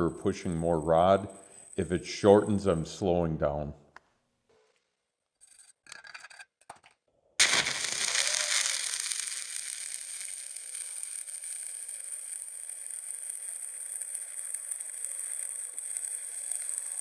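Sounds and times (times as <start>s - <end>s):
welding arc sizzling: 0.0s - 2.9s, 7.4s - 17.0s.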